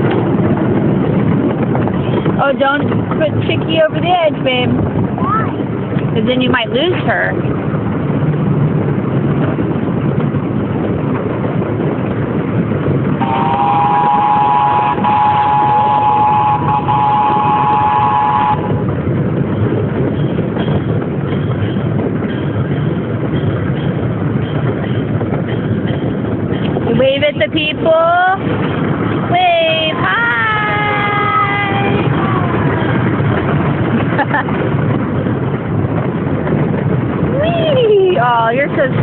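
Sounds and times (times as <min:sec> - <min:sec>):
train cars rumbling: 0:00.0 - 0:39.0
two-tone train horn: 0:13.2 - 0:18.9, 0:30.2 - 0:32.9.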